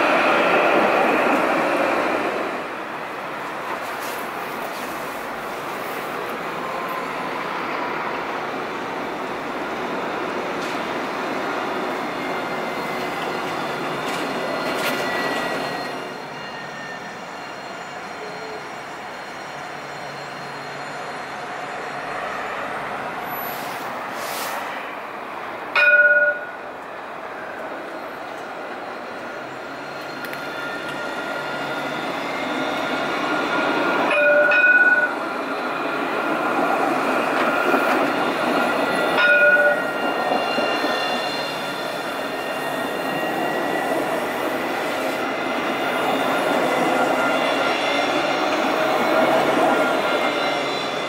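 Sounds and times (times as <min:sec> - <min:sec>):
tram running along track: 0:00.0 - 0:51.0
brief hiss: 0:23.5 - 0:24.8
tram warning gong: 0:25.7 - 0:26.8, 0:29.8 - 0:51.0.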